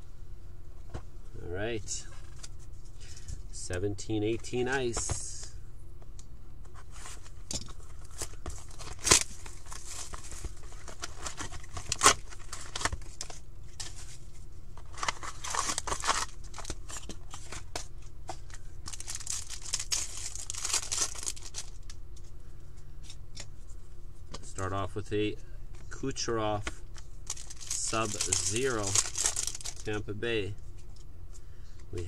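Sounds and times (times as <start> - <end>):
wrapping crinkling and ripping: 8.0 - 14.1, 14.8 - 17.6, 18.8 - 21.9, 27.2 - 30.0.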